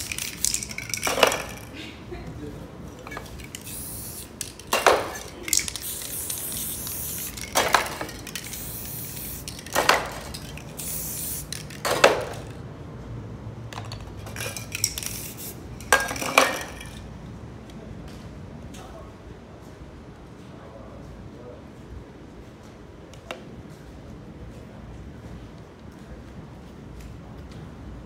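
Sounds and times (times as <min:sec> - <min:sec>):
spray paint can hissing: 0:00.0 - 0:01.7, 0:03.0 - 0:12.5, 0:14.3 - 0:17.0
sharp clatters: 0:00.0 - 0:01.8, 0:03.0 - 0:12.6, 0:13.7 - 0:17.0.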